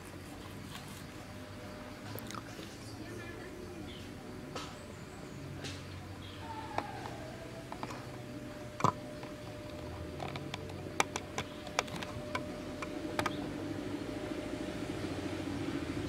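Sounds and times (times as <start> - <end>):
steady low hum: 0.0 - 16.0
sharp clicks and snaps: 8.8 - 13.4.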